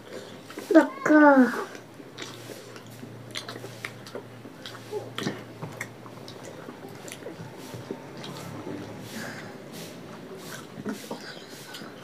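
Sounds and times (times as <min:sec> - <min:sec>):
chewing: 0:00.0 - 0:00.8, 0:01.5 - 0:12.0
hands squishing food on plates: 0:00.0 - 0:12.0
small clicks and wet smacks: 0:01.6 - 0:09.0.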